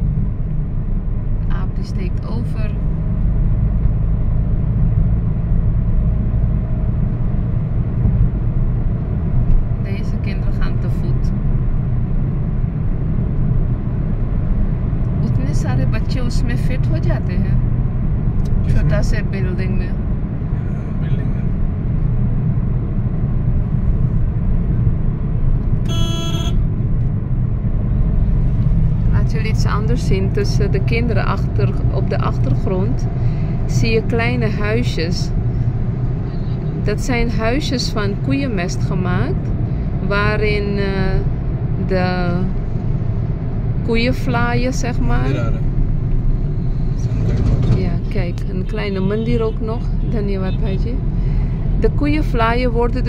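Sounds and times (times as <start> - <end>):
car road and engine noise: 0.0 - 53.0
car horn beep: 25.8 - 26.6.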